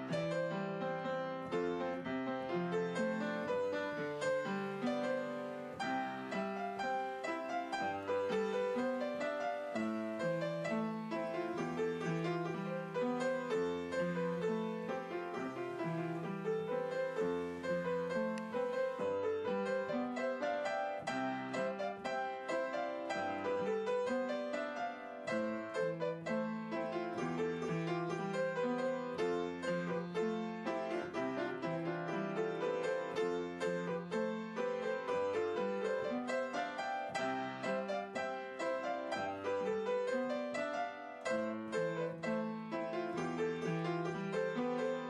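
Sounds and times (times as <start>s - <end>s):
piano music: 0.0s - 45.0s.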